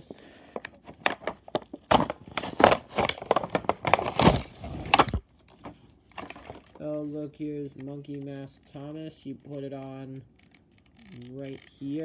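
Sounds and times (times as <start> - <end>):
plastic packaging crackling: 0.0 - 7.0.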